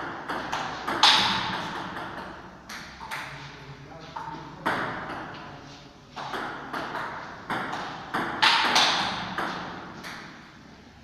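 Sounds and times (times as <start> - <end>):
table tennis ball hits: 0.0 - 3.3, 4.6 - 5.4, 6.2 - 10.4.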